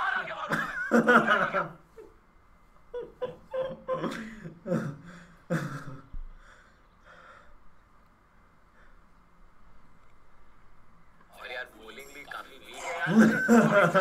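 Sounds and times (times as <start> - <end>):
man laughing: 0.2 - 2.2, 2.8 - 6.2, 12.8 - 14.0.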